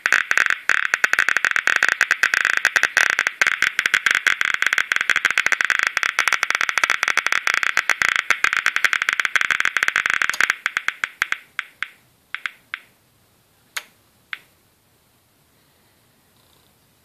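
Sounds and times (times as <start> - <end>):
radiation counter clicking: 0.0 - 12.9.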